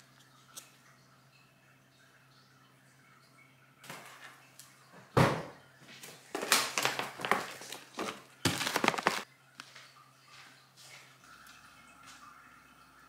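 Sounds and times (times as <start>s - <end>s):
plastic bag crinkling: 6.3s - 9.3s.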